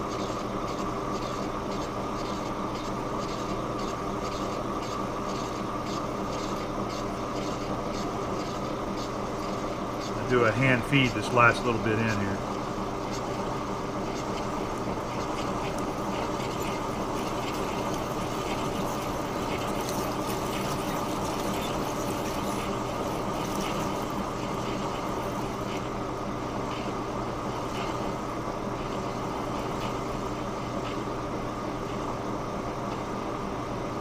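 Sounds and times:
metal lathe motor humming: 0.0 - 33.9.

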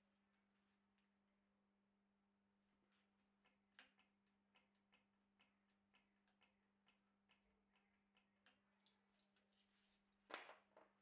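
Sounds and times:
faint regular ticking: 2.7 - 10.1.

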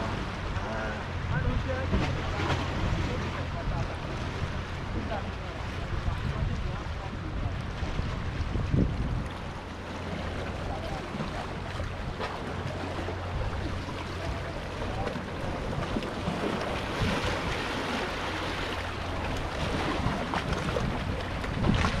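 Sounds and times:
small waves washing against rocks: 4.2 - 22.0
wind noise on microphone: 5.8 - 9.7, 13.2 - 18.0, 19.4 - 22.0.

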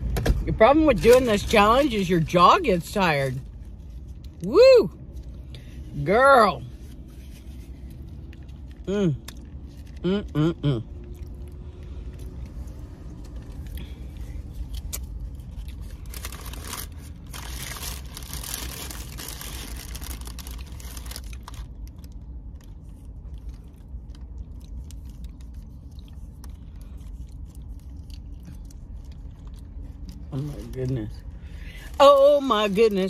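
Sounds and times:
steady low hum: 0.0 - 33.0
taco shell crackling: 0.9 - 5.9, 6.6 - 33.0
chewing: 7.8 - 12.6, 22.6 - 30.4
paper wrapper rustling: 15.6 - 22.7.

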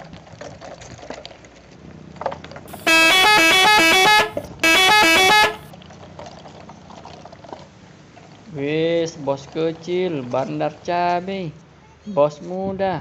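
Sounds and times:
melodic bus horn: 2.7 - 5.7.

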